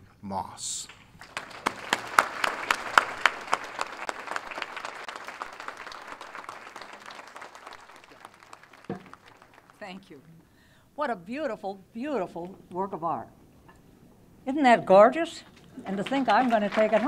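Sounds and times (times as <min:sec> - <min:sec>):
audience applauding: 0:01.2 - 0:10.3, 0:15.8 - 0:17.0.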